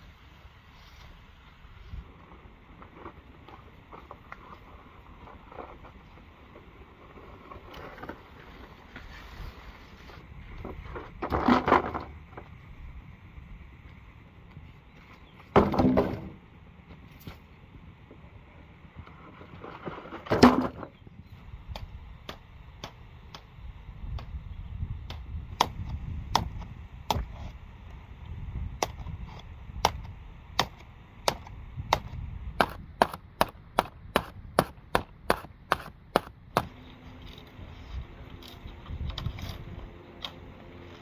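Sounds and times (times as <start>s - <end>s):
machete chopping bamboo: 29.8s - 36.8s.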